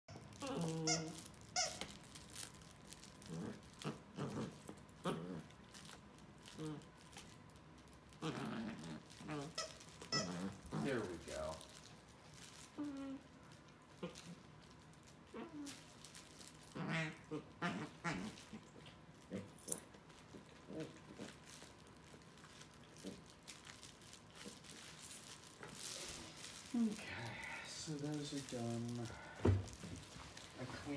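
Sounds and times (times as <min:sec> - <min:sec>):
dog toy squeaking: 0:00.1 - 0:02.0, 0:09.4 - 0:10.6
dogs chewing toy: 0:00.1 - 0:30.9.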